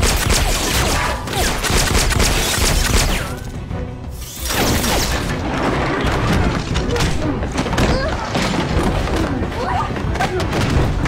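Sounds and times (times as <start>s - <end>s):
gunshots: 0.0s - 3.6s, 4.2s - 9.1s
dramatic music score: 0.0s - 11.0s.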